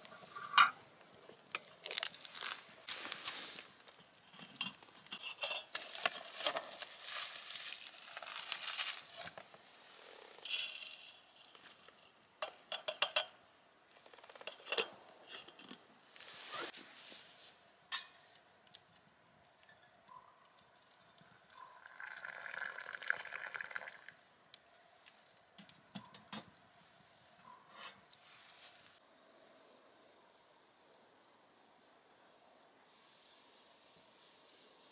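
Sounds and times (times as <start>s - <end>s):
rustling and crinkling: 0.0s - 12.8s, 13.9s - 21.3s, 24.4s - 29.0s
metal cookware clinking: 12.4s - 13.4s, 17.9s - 18.2s.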